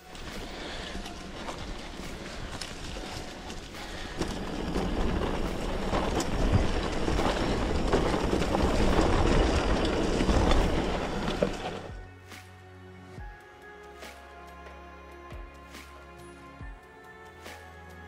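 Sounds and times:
bike clicks and rattles: 0:00.0 - 0:12.0
bike tyres rumbling on rough track: 0:00.0 - 0:12.0.

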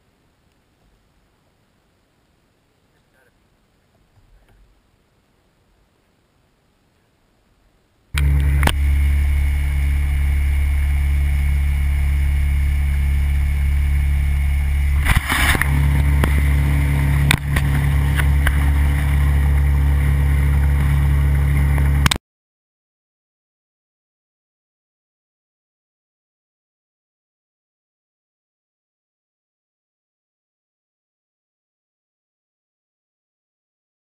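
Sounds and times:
outboard motor running: 0:08.2 - 0:22.2.

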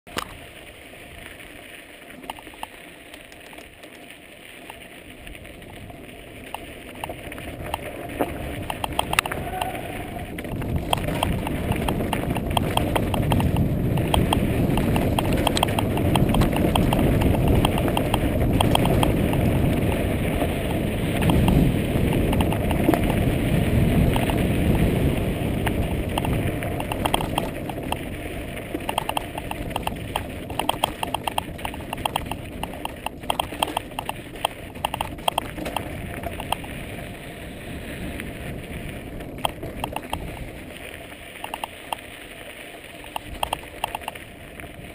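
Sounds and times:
bike rattling over rocks: 0:00.1 - 0:44.9
tyres on dirt: 0:00.1 - 0:44.9
wind on microphone: 0:07.5 - 0:40.8.

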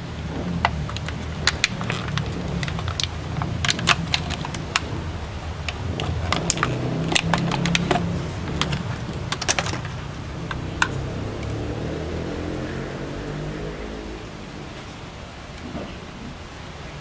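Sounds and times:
steady low hum: 0:00.0 - 0:17.0
plastic packaging clicking: 0:00.4 - 0:11.6.

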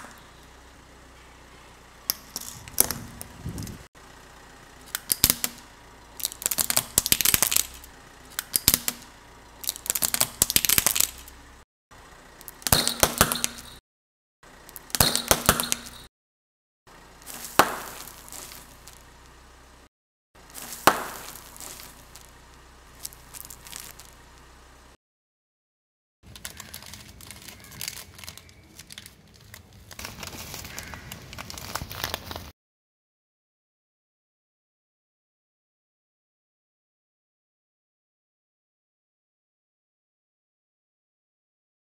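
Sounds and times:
plastic toy cracking under tyre: 0:04.9 - 0:05.6, 0:06.2 - 0:11.4, 0:23.0 - 0:24.2, 0:26.3 - 0:32.5
plastic packet crinkling: 0:20.5 - 0:22.3, 0:23.0 - 0:24.2, 0:26.3 - 0:32.5.

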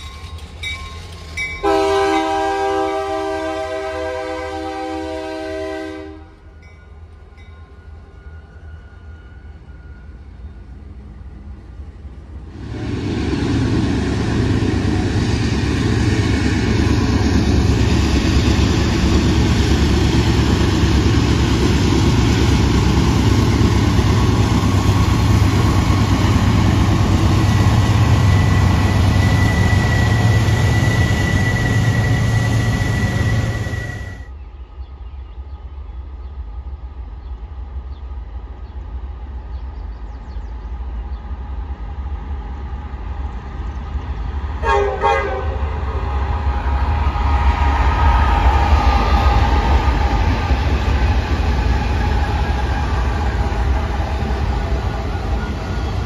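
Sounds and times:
train passing with wheel noise: 0:00.0 - 0:56.0
train horn chord: 0:01.6 - 0:06.4, 0:44.6 - 0:46.0.

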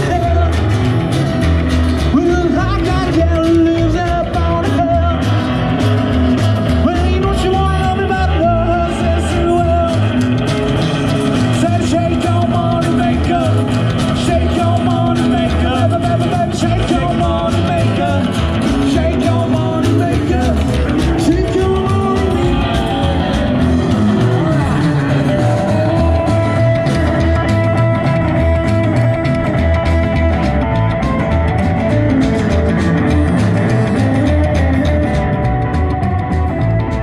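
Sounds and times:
drum kit: 0:00.0 - 0:37.0
electric and acoustic guitars: 0:00.0 - 0:37.0
upright double bass: 0:00.0 - 0:37.0
lead singer singing: 0:02.0 - 0:06.1, 0:06.7 - 0:32.0.

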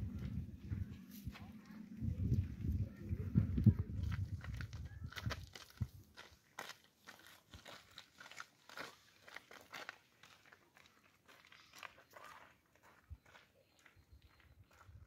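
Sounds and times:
footsteps crunching on gravel: 0:03.7 - 0:15.0.

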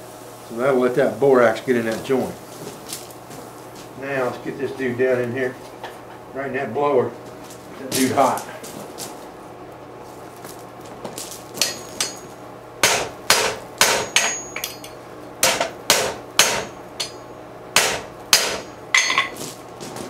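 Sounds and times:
anvil ringing: 0:11.6 - 0:19.4
hammer striking steel on anvil: 0:11.6 - 0:19.4.

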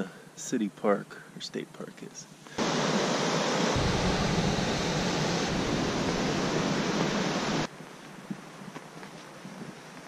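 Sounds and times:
rushing waterfall: 0:02.6 - 0:07.7.

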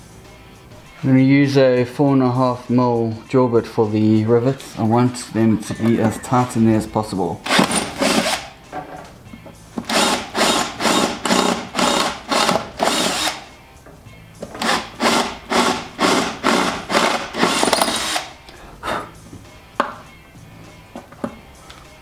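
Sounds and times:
power drill pulsing: 0:07.4 - 0:08.5, 0:09.9 - 0:13.4, 0:14.6 - 0:18.3.

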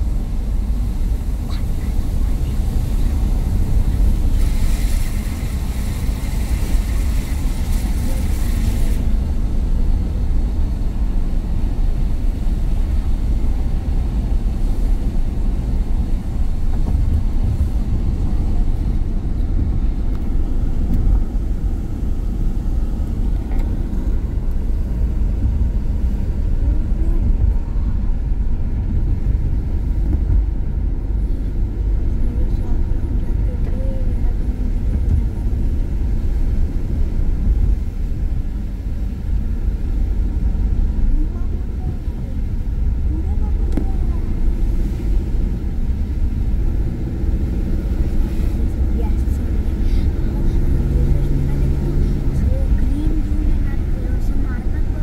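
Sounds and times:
car engine rumble: 0:00.0 - 0:55.0
tyres on wet road: 0:00.0 - 0:55.0
hiss: 0:04.2 - 0:09.0.

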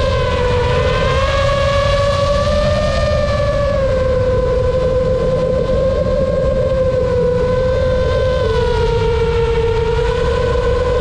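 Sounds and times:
drone propellers whining: 0:00.0 - 0:11.0.

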